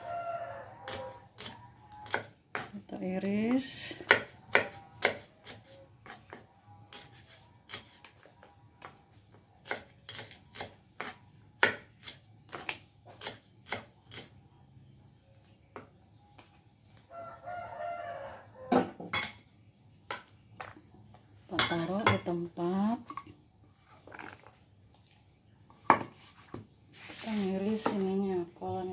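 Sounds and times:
rooster crowing: 0.0s - 2.0s, 17.1s - 19.0s
knife chopping on wooden board: 4.0s - 8.0s, 9.6s - 14.3s.

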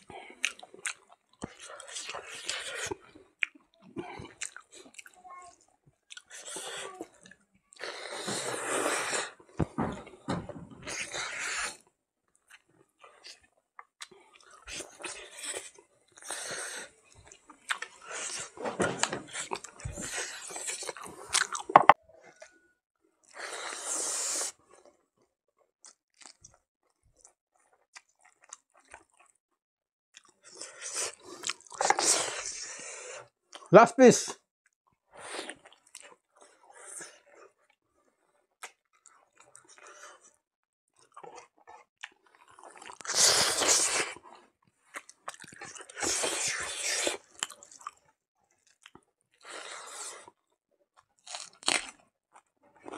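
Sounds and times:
wet chewing and lip smacks: 0.3s - 5.2s, 17.2s - 18.4s, 25.8s - 26.6s, 41.0s - 44.0s, 44.9s - 49.0s
crunchy chewing: 41.0s - 49.0s, 51.1s - 52.9s.

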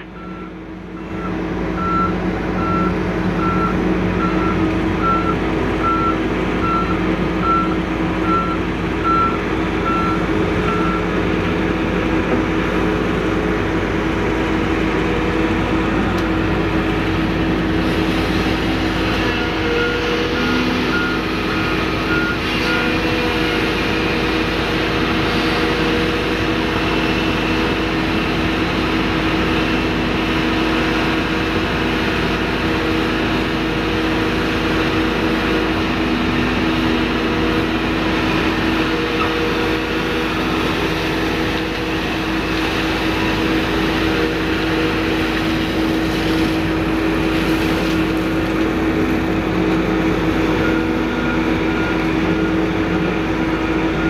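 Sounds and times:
heavy diesel engines running: 0.0s - 54.0s
reversing alarm beeping: 0.1s - 11.1s, 19.4s - 23.1s.

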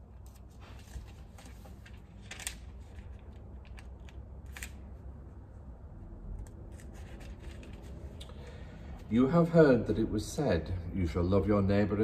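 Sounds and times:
book pages turning: 0.0s - 5.1s, 6.3s - 8.2s
low room hum: 0.0s - 12.0s.

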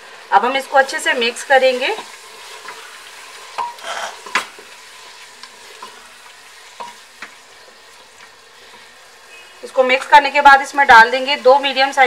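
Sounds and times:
meat sizzling in a pot: 0.0s - 12.0s
spatula scraping a pot: 3.6s - 4.4s.

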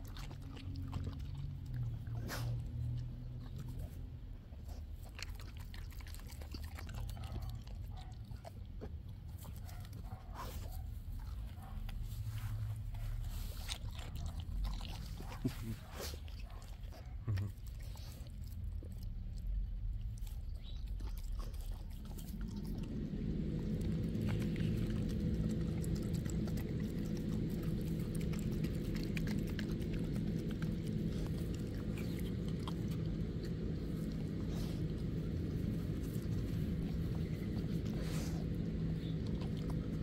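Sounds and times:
dog chewing and crunching: 0.0s - 40.0s
steady low hum: 0.0s - 40.0s.

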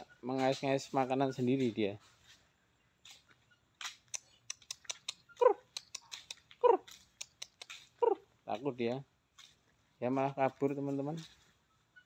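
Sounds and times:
footsteps on concrete: 1.6s - 4.4s, 5.2s - 8.2s, 9.2s - 11.6s.

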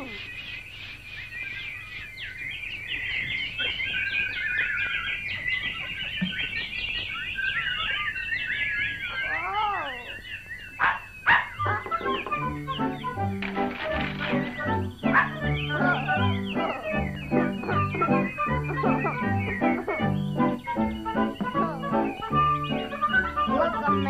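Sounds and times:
cartoon birds chirping: 0.0s - 24.0s
lower rising and falling call: 7.2s - 10.8s.

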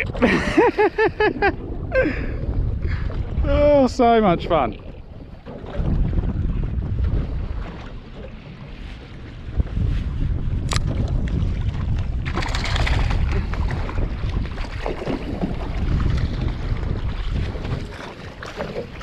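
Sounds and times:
choppy sea: 0.0s - 19.0s
wind buffeting the microphone: 0.0s - 19.0s
fish splashing at the surface: 12.3s - 14.0s.

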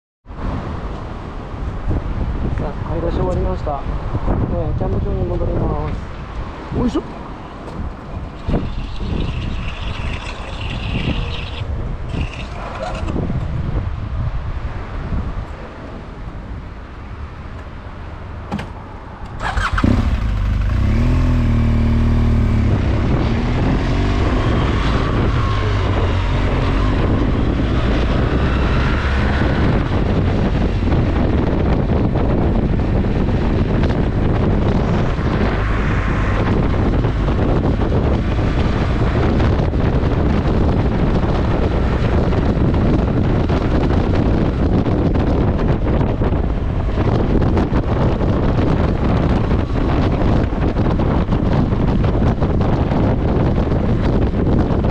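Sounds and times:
wind noise on microphone: 0.2s - 54.9s
motorcycle engine running: 19.4s - 27.3s.

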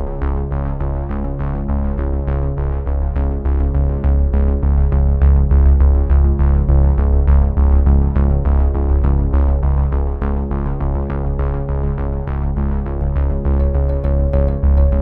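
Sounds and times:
strong held bass: 13.2s - 15.0s
synthesizer notes pulsing: 13.6s - 15.0s.

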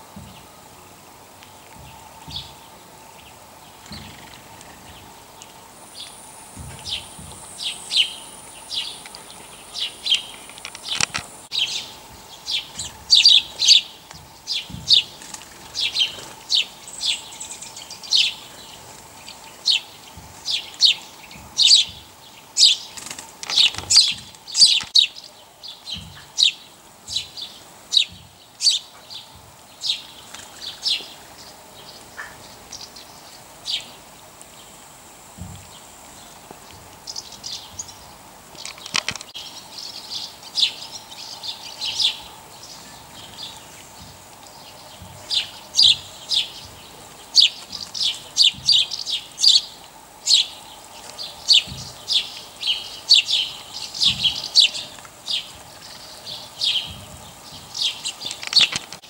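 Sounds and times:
small bird chirping: 1.5s - 34.0s, 35.4s - 59.0s.

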